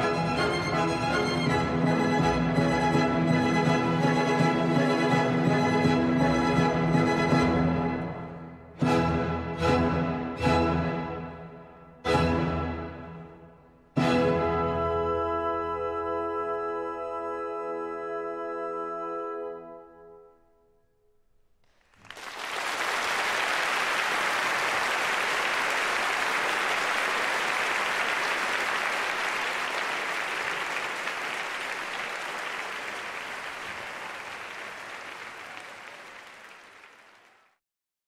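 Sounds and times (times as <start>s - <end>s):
audience applauding: 21.6s - 37.6s.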